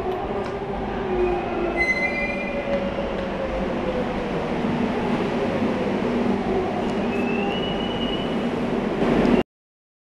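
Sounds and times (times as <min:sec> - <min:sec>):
high metallic squeal: 0:01.8 - 0:02.6.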